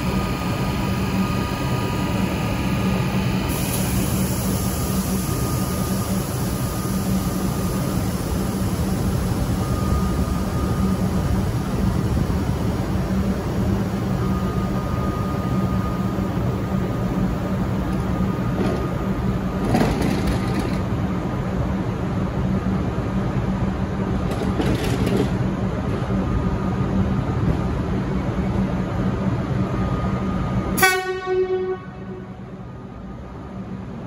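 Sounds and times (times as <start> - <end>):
diesel railcar engines droning: 0.0 - 34.0
train horn blast: 30.8 - 32.5.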